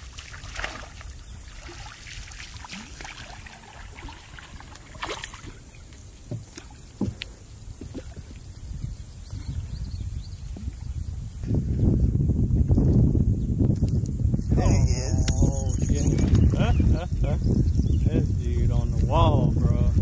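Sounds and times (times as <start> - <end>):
fish splashing at surface: 0.0 - 5.7
low rumble of wind and water: 0.0 - 20.0
knocks on boat: 6.3 - 7.2.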